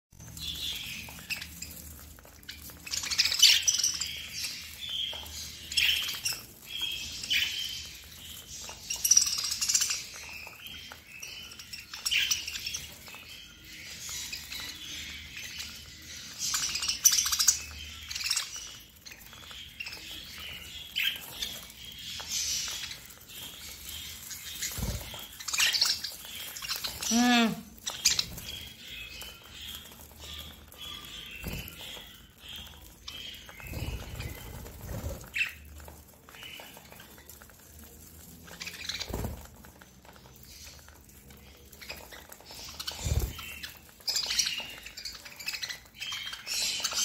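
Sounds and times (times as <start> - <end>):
budgerigars chirping: 0.3 - 39.5, 40.2 - 47.0.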